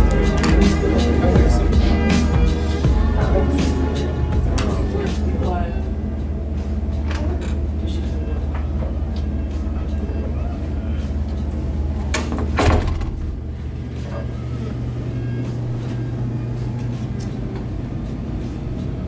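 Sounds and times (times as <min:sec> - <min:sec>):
steady low drone: 0:00.0 - 0:19.0
door opening clatter: 0:12.0 - 0:13.6.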